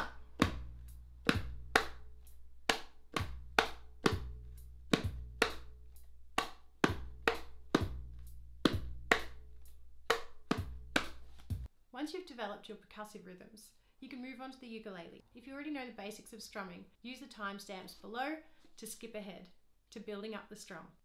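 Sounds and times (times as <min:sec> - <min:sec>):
hands tapping wooden ukulele: 0:00.0 - 0:00.6, 0:01.2 - 0:02.0, 0:02.7 - 0:04.3, 0:04.9 - 0:05.7, 0:06.4 - 0:08.0, 0:08.6 - 0:09.4, 0:10.0 - 0:11.5.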